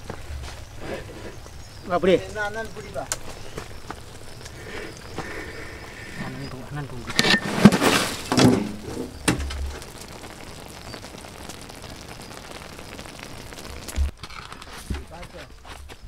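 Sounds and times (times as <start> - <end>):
ash crackling and scraping: 0.0 - 16.0
steady hiss: 0.0 - 16.0.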